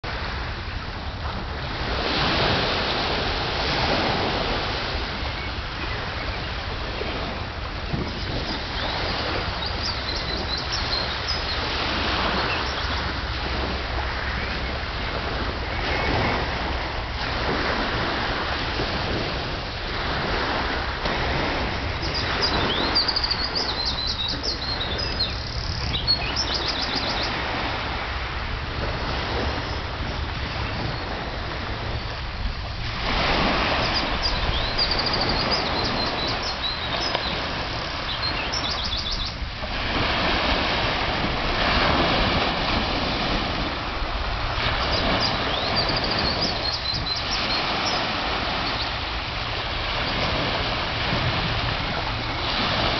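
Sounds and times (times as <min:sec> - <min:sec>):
sea waves washing on shore: 0:00.0 - 0:52.9
small birds chirping: 0:08.8 - 0:11.7, 0:22.0 - 0:27.4, 0:33.8 - 0:37.4, 0:38.0 - 0:39.4, 0:44.9 - 0:48.9.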